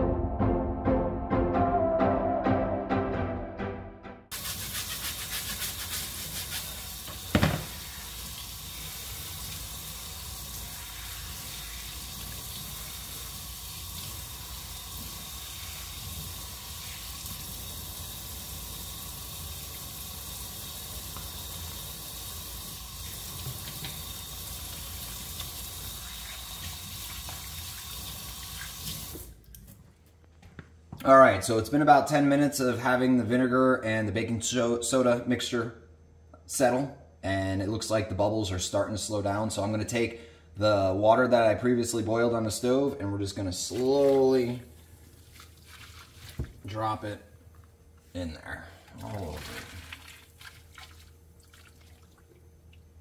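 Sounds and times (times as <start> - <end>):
faucet water running into sink: 4.3 - 29.3.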